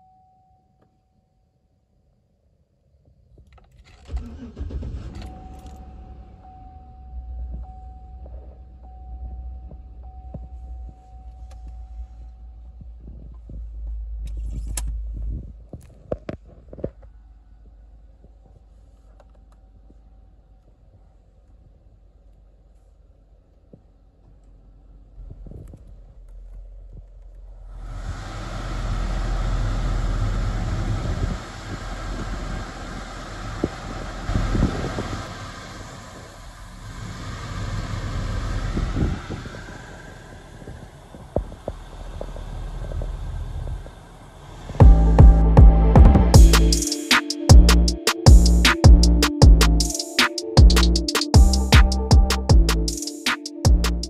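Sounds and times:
car engine idling: 0:03.9 - 0:15.7, 0:17.2 - 0:50.0, 0:50.6 - 0:53.0
low rumble: 0:25.0 - 0:46.8.

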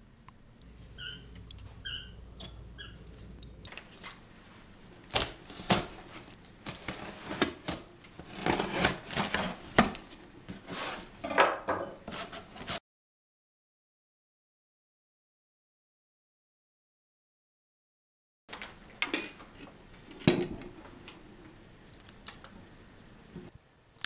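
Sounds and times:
knife slitting packing tape: 0:05.1 - 0:06.0, 0:06.6 - 0:10.1.

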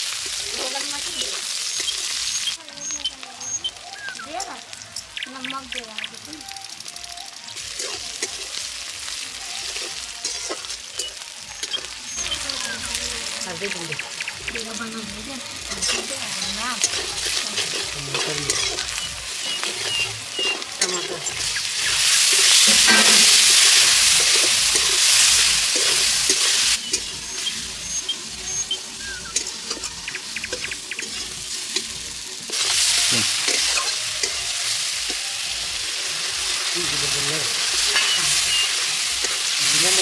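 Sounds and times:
vegetables sizzling in oil: 0:00.0 - 0:40.0
metal spatula scraping pan: 0:15.7 - 0:27.6, 0:37.6 - 0:39.5.

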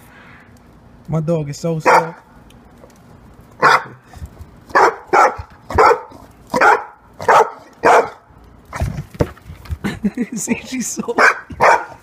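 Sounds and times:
dog barking: 0:01.8 - 0:02.2, 0:03.6 - 0:04.0, 0:04.7 - 0:08.3, 0:11.2 - 0:12.0.

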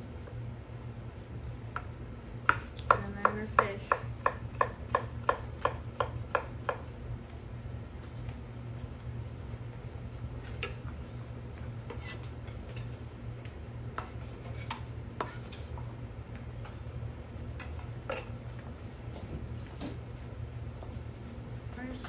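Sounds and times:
knife scraping cutting board: 0:11.9 - 0:12.9, 0:14.0 - 0:15.6.

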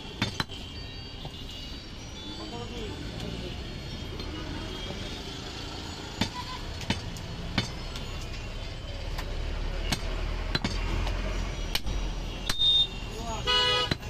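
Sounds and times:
low hum of traffic: 0:00.0 - 0:14.0
cleaver chopping meat on wood: 0:09.9 - 0:10.9.

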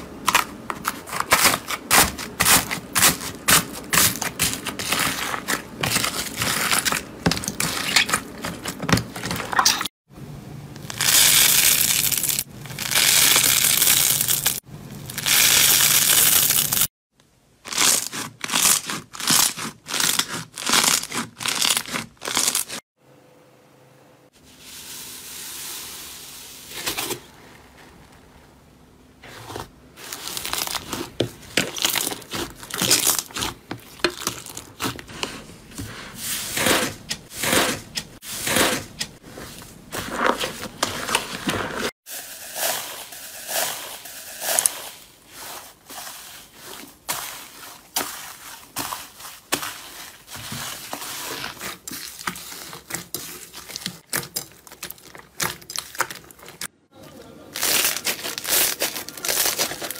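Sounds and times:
slime squelching: 0:00.0 - 0:09.9, 0:17.7 - 0:22.8, 0:29.2 - 0:56.7
slime crackling and popping: 0:30.1 - 0:34.9, 0:51.3 - 0:56.6.

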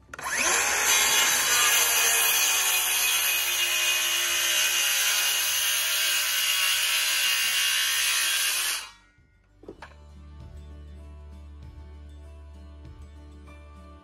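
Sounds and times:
circular saw cutting wood: 0:00.0 - 0:09.0.

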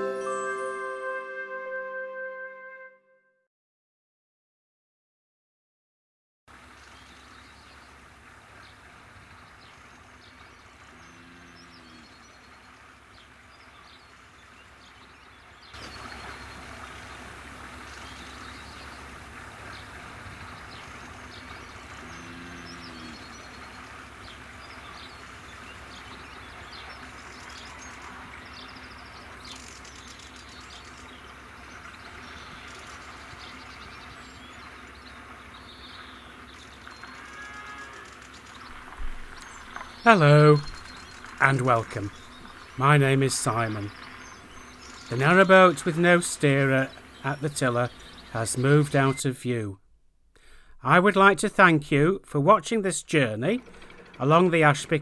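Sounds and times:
birds chirping: 0:06.6 - 0:49.8, 0:50.4 - 0:55.0
boat engine running: 0:15.6 - 0:37.2, 0:38.0 - 0:49.0, 0:53.1 - 0:55.0.

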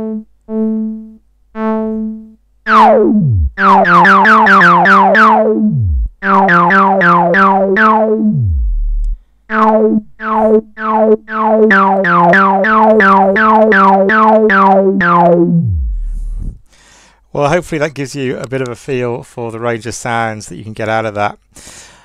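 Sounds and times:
synthesizer repeated notes: 0:00.0 - 0:16.5.

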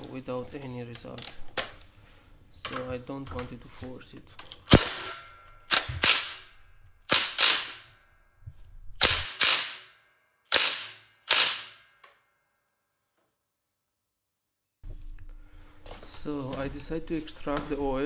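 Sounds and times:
impact wrench bursts: 0:04.7 - 0:06.5, 0:07.1 - 0:07.9, 0:09.0 - 0:09.9, 0:10.5 - 0:11.8.

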